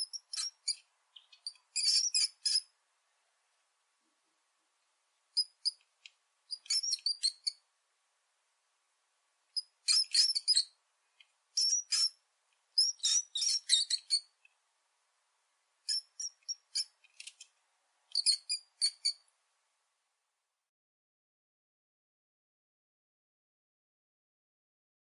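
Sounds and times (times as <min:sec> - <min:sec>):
small rodent squeaking: 0:00.0 - 0:02.8, 0:05.3 - 0:05.9, 0:06.5 - 0:07.6, 0:09.5 - 0:10.8, 0:11.5 - 0:14.4, 0:15.8 - 0:17.4, 0:18.1 - 0:19.3.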